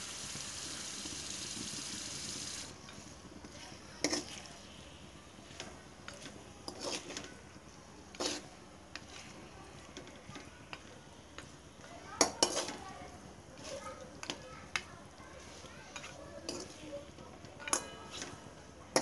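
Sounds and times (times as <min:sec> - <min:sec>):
chicken frying: 0:00.0 - 0:19.0
metal spoon scraping a pan: 0:02.9 - 0:04.5, 0:05.5 - 0:07.3, 0:08.1 - 0:09.4, 0:12.2 - 0:12.8, 0:15.4 - 0:16.9, 0:17.6 - 0:19.0.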